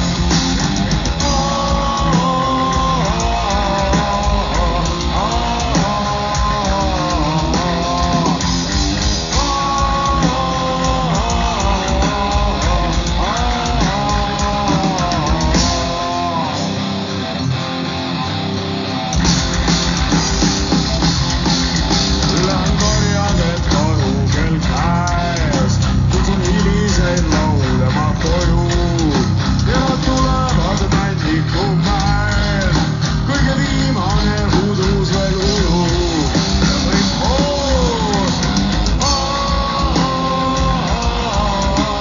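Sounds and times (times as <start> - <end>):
bass guitar: 0.0 - 42.0
distorted electric guitars: 0.0 - 42.0
drums: 0.0 - 42.0
person singing melody: 1.2 - 8.6, 22.3 - 42.0.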